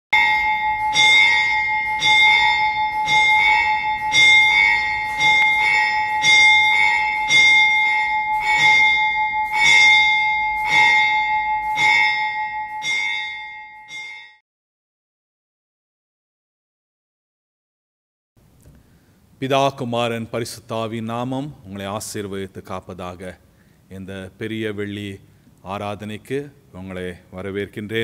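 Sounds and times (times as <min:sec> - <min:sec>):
church bell tolling: 0:00.1 - 0:14.4.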